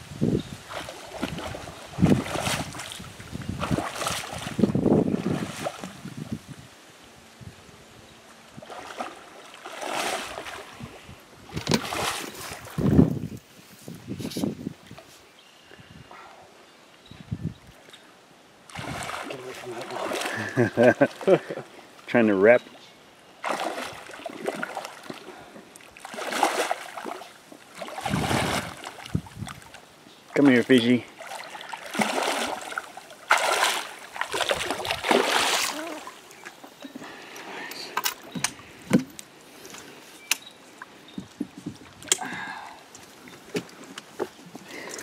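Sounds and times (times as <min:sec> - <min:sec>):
fish splashing at water surface: 0:18.7 - 0:20.6, 0:23.4 - 0:25.2, 0:26.0 - 0:29.0, 0:31.2 - 0:36.1.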